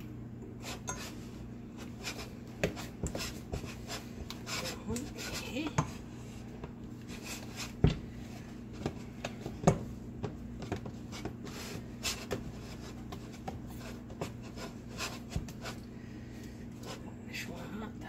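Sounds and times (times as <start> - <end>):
steady low hum: 0.0 - 18.0
wooden spoon scraping a saucepan: 0.6 - 9.6, 10.6 - 15.9.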